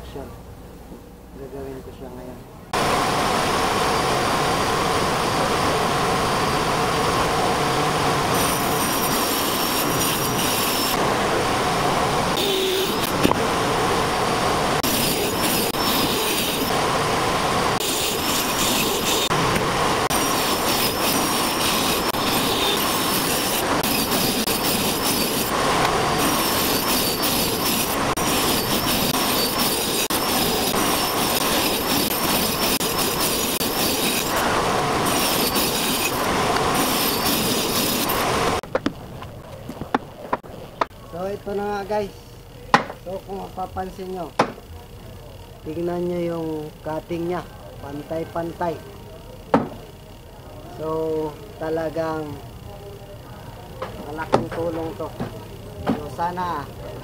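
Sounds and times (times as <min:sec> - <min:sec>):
saw blade whining and cutting: 0:02.8 - 0:38.7.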